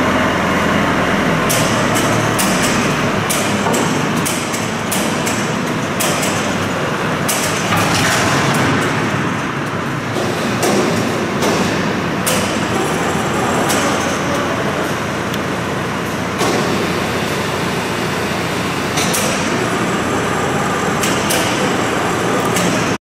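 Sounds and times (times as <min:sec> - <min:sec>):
sharp metallic knocks: 0:01.5 - 0:06.7, 0:10.1 - 0:13.0.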